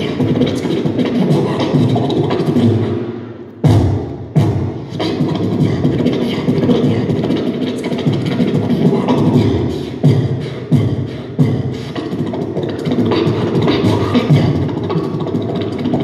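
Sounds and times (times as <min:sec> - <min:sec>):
beatboxing through speakers: 0:00.0 - 0:16.0
heavy kick-drum sounds: 0:03.6 - 0:05.8.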